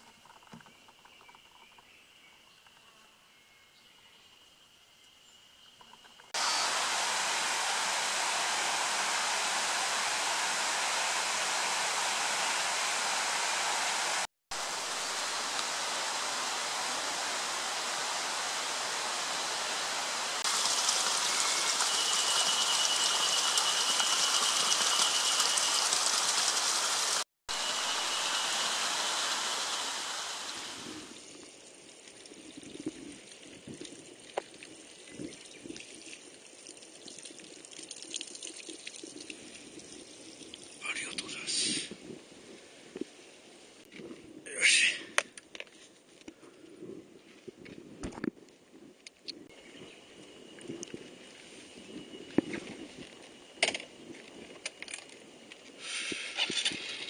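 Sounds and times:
thin high whine: 6.3s - 31.2s
flowing water rushing: 6.4s - 31.2s.

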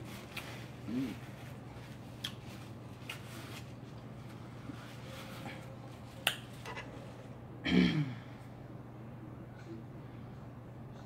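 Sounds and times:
paper napkin rustling: 0.0s - 7.3s
quiet eating: 0.0s - 7.4s, 9.4s - 11.0s
steady low hum: 0.0s - 11.0s.

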